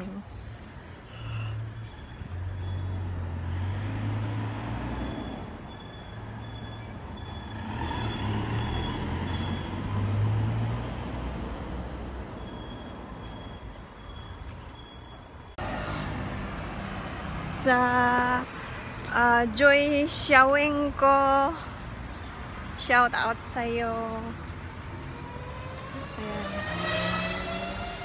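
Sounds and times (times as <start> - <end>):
vehicle engine rumbling: 0.0 - 28.0
faint high-pitched beep: 2.0 - 3.1, 12.4 - 15.6.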